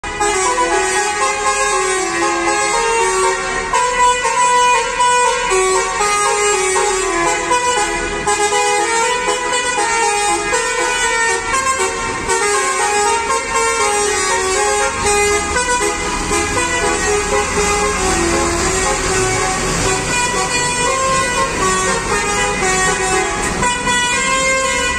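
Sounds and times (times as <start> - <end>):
diesel bus engine: 0.0 - 24.9
musical bus horn melody: 0.0 - 24.9.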